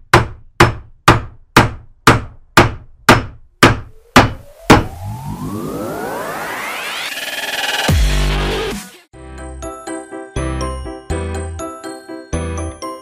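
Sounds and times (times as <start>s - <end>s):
rising electronic sweep: 3.9s - 9.1s.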